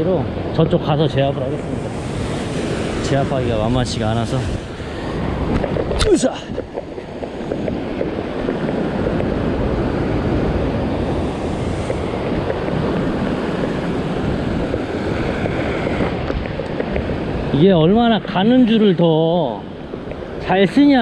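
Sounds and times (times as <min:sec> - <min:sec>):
ocean surf breaking on rocks: 0:00.0 - 0:21.0
wind buffeting microphone: 0:00.0 - 0:21.0.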